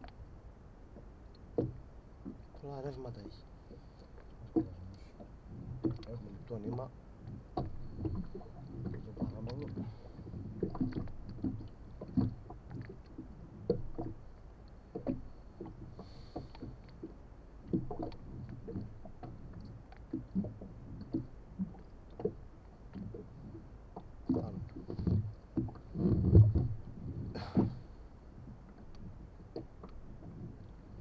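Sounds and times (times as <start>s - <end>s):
water lapping against boat hull: 0.0s - 31.0s.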